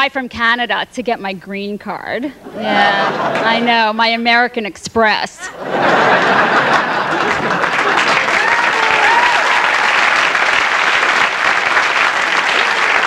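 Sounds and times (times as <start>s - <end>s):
audience applauding: 3.1s - 3.6s, 5.8s - 13.0s.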